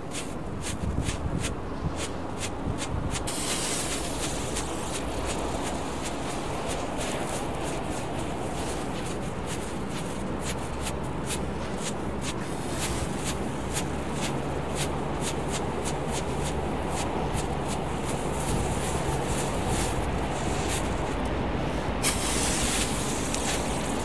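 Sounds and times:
firework crackling: 0:02.4 - 0:21.3, 0:22.0 - 0:24.0
firework hissing: 0:03.2 - 0:21.1, 0:21.7 - 0:24.0.

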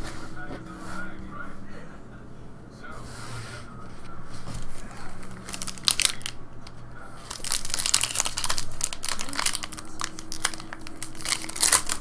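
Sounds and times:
foil wrapper crinkling and tearing: 0:05.4 - 0:06.4, 0:07.2 - 0:12.0.

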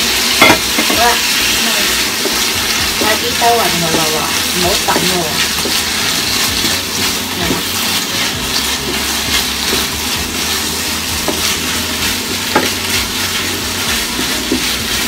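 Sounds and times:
mushrooms sizzling in a pan: 0:00.0 - 0:15.0
wooden spatula scraping a pan: 0:00.2 - 0:15.0.

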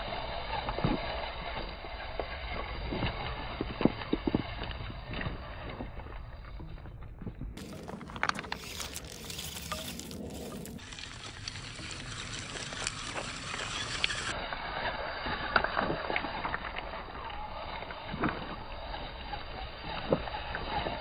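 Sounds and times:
stones clicking and knocking: 0:07.6 - 0:14.4.

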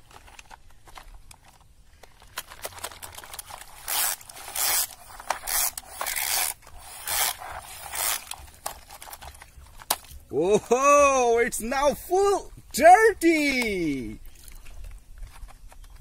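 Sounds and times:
toy truck dragging through mud: 0:00.2 - 0:10.0.

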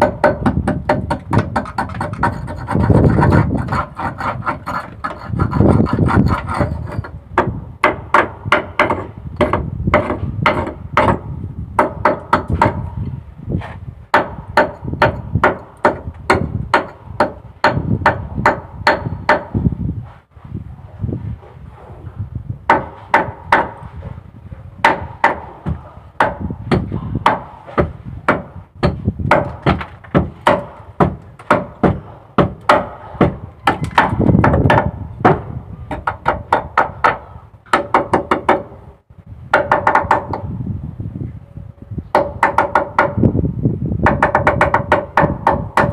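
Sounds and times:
hammer knocking on metal: 0:00.0 - 0:12.9, 0:14.1 - 0:19.5, 0:24.8 - 0:38.7, 0:39.5 - 0:40.5, 0:42.1 - 0:43.2, 0:44.0 - 0:45.9.

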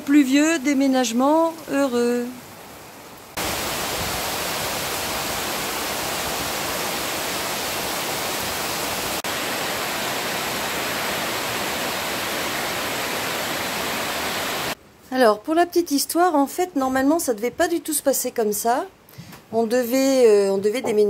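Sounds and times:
heavy rain: 0:00.0 - 0:14.8.

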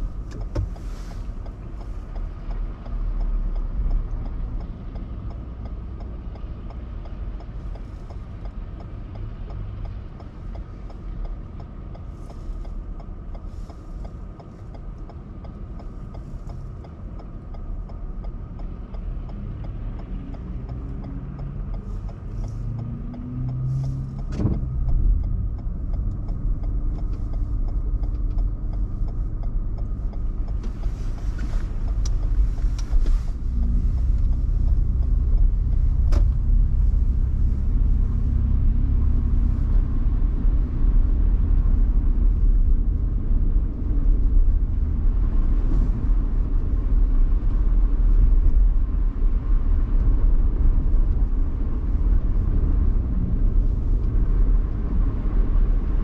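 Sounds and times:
car engine rumble: 0:00.0 - 0:56.0
road noise: 0:00.0 - 0:56.0
sharp tick: 0:01.4 - 0:38.0.

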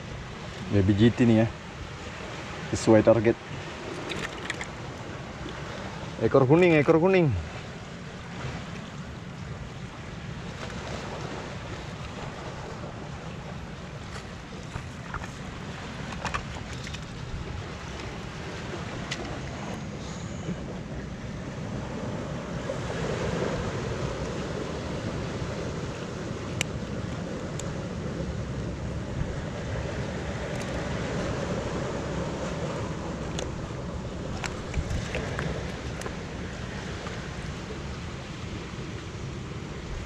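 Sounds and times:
surf against rocky shore: 0:00.0 - 0:40.0
wind on microphone: 0:09.5 - 0:40.0.

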